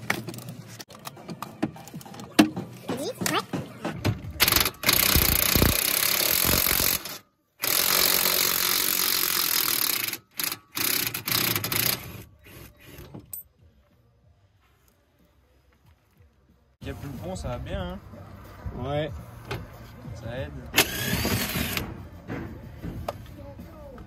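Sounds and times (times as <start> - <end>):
impact wrench running: 4.4 - 12.2, 20.8 - 21.9.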